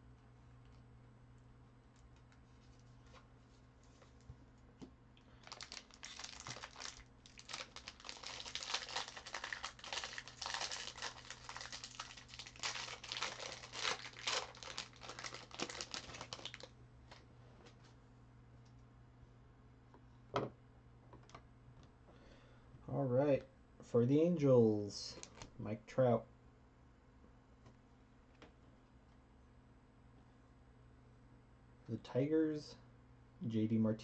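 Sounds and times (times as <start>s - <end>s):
foil wrapper crinkling: 5.3s - 16.7s.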